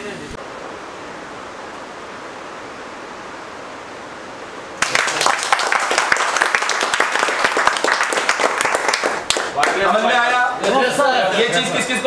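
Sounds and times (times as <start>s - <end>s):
steady hiss: 0.0s - 12.0s
crowd applauding: 4.8s - 10.8s.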